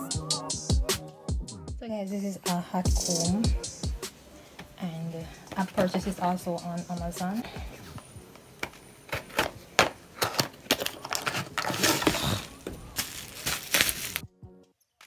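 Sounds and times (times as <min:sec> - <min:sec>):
packaging tearing rustle: 0:09.2 - 0:14.3.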